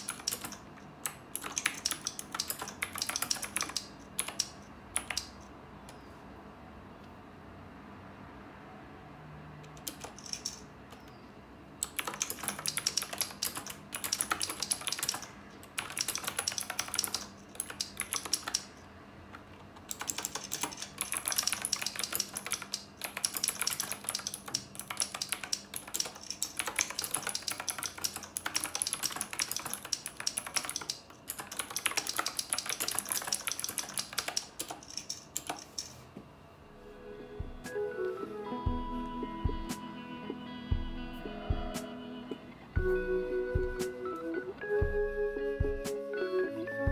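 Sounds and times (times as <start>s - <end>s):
mechanical keyboard typing: 0.0s - 5.5s, 9.7s - 11.2s, 11.8s - 18.8s, 19.7s - 36.0s.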